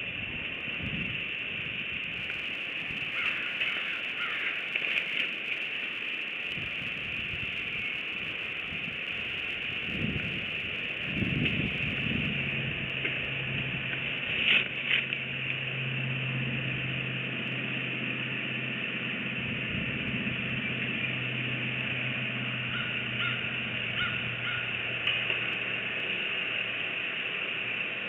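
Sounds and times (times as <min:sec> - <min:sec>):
steady hiss: 0:00.6 - 0:13.0
low hum: 0:00.9 - 0:28.0
faint bird calls: 0:02.3 - 0:12.2, 0:22.7 - 0:24.8.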